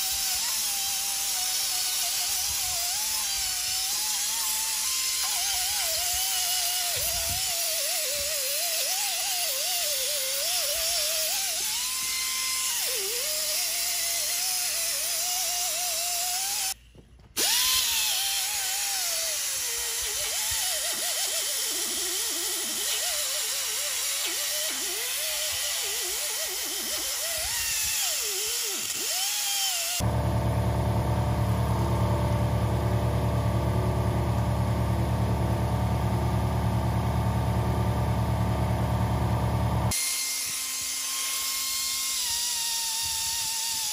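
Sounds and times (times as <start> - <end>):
die grinder whine on metal: 17.4 - 43.9
deep machine hum: 30.0 - 39.9.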